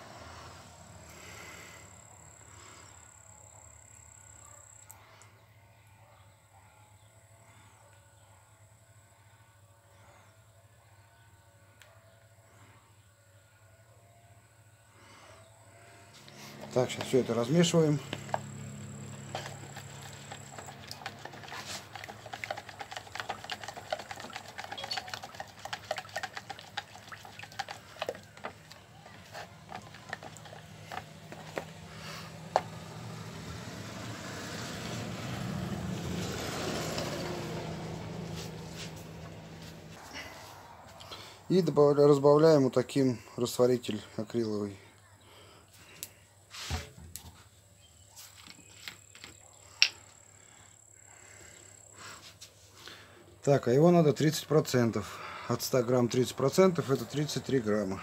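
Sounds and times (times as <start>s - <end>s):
stirrer scraping a mixing cup: 16.2s - 32.7s.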